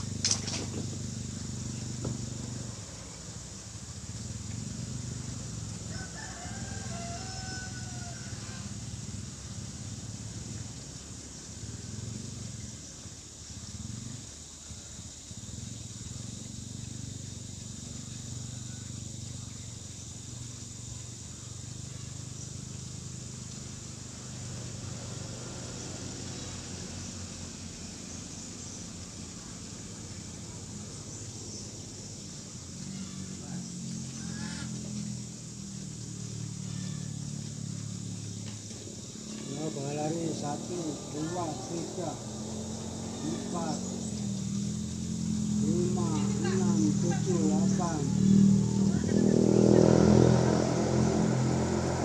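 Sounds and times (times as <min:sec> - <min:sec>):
insects buzzing: 0:00.0 - 0:52.0
rooster crowing: 0:05.8 - 0:08.9.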